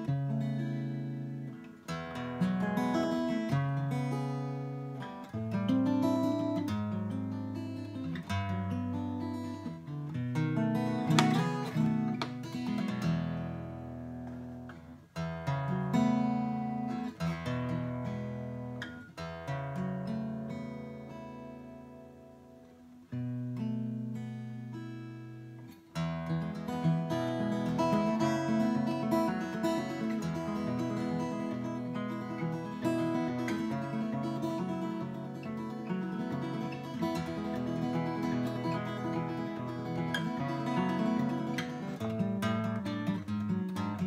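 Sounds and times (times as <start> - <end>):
acoustic guitar picking: 0.0 - 44.0.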